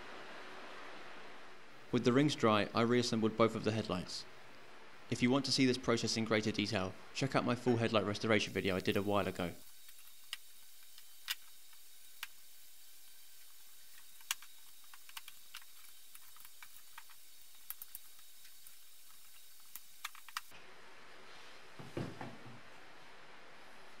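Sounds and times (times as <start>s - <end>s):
faint steady hiss: 0.0s - 24.0s
plastic and metal parts clicking: 13.8s - 20.5s.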